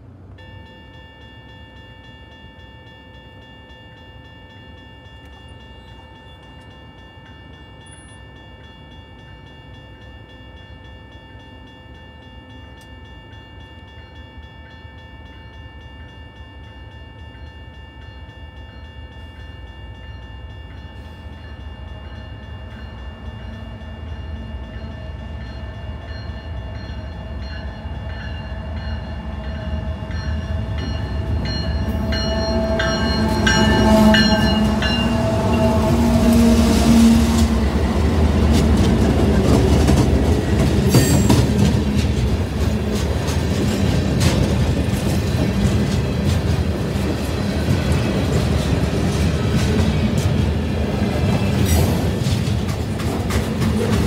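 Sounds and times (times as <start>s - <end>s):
crossing warning bell ringing: 0.0s - 54.0s
diesel train rumble: 20.3s - 54.0s.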